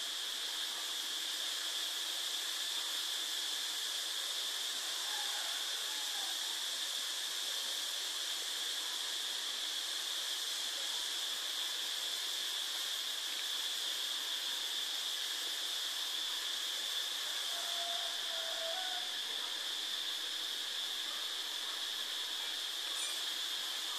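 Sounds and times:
steady high hiss: 0.0 - 23.9
thin whine: 17.2 - 23.9.

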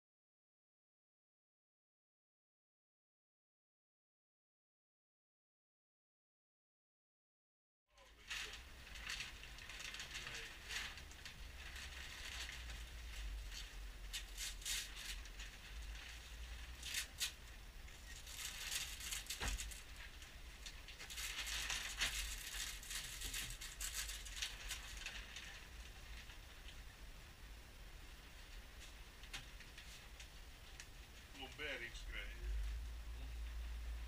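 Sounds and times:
plastic wrapping crinkling: 8.0 - 26.9
steady low hum: 8.0 - 34.0.

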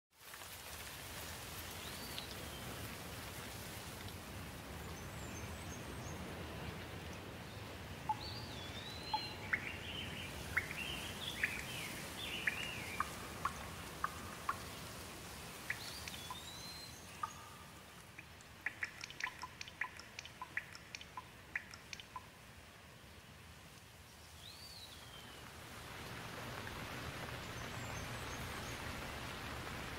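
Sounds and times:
steady rain: 0.1 - 29.9
water dripping: 0.2 - 5.8, 7.9 - 22.5, 25.1 - 29.9
birds chirping and calling: 8.1 - 14.6, 18.6 - 22.2.

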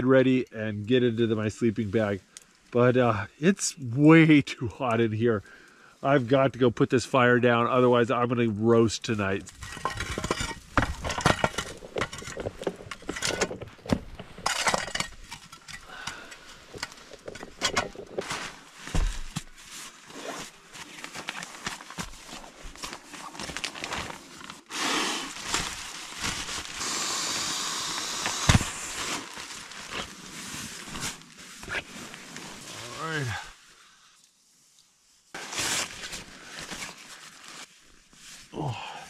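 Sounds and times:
fire crackling: 0.2 - 38.5
metal shovel scraping logs: 9.5 - 21.5
nylon bedding rustling: 18.1 - 27.0, 28.7 - 33.1, 35.3 - 38.5.

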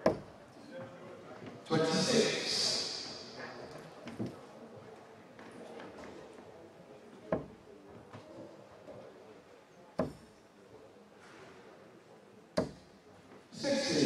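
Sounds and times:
darts thudding into dartboard: 10.0 - 10.3, 12.6 - 12.8.

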